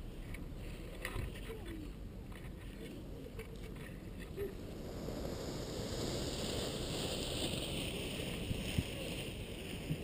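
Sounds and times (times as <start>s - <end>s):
wind blowing across microphone: 0.8s - 10.0s.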